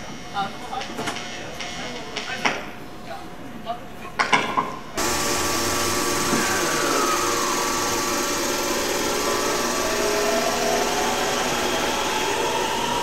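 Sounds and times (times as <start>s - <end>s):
electric motor whine: 5.0s - 13.0s
train wheels rumbling: 5.0s - 13.0s.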